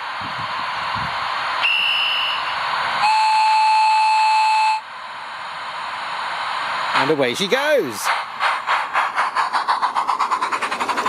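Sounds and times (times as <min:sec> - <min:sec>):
short high whistle: 0:01.6 - 0:04.8
long low whistle: 0:01.6 - 0:04.9.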